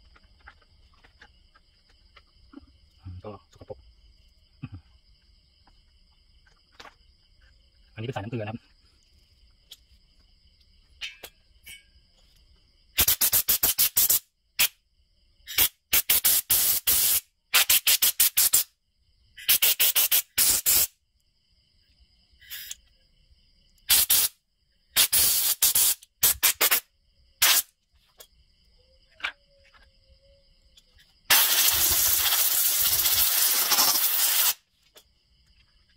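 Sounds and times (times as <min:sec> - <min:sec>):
compressed air blow gun blasts: 0:13.0 - 0:14.8, 0:15.5 - 0:18.7, 0:19.4 - 0:20.9, 0:23.9 - 0:24.4, 0:25.0 - 0:26.8, 0:27.4 - 0:27.7, 0:31.3 - 0:34.6.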